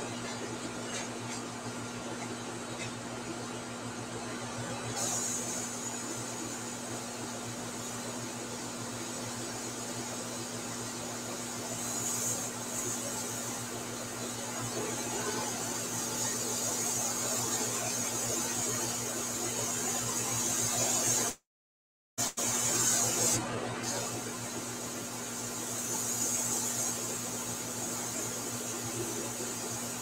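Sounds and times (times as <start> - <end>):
airbrush hissing: 5.0 - 10.2, 11.3 - 13.7, 22.2 - 30.0.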